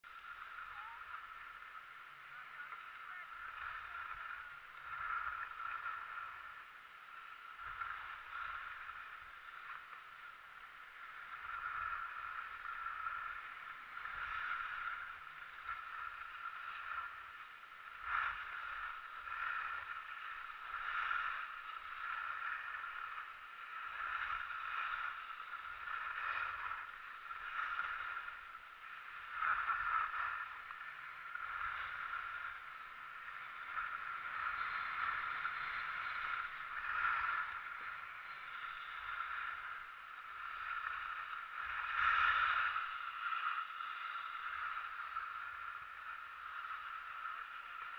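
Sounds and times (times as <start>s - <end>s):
skis scraping over snow: 10.8s - 47.9s.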